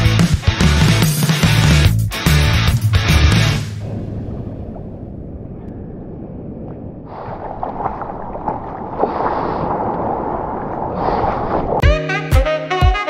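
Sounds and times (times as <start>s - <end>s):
wind on microphone: 3.8s - 11.8s
surf washing: 6.2s - 11.8s.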